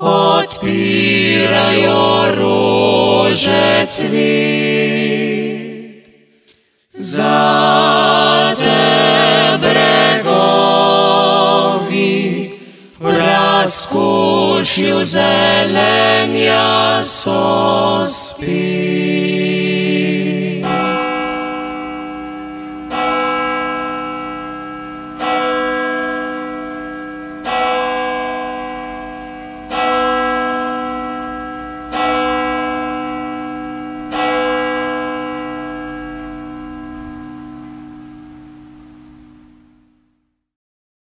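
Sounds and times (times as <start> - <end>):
vocal quartet singing chord: 0.0 - 21.6
church bell tolling: 7.0 - 19.3, 20.4 - 40.0.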